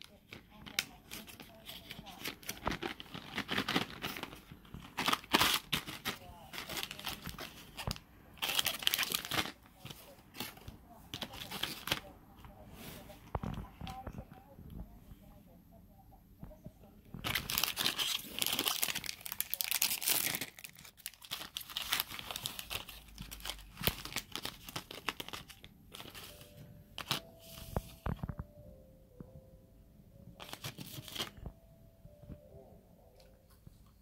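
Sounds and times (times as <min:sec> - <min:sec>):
snack wrapper crinkling: 0:00.3 - 0:10.6, 0:17.2 - 0:26.3.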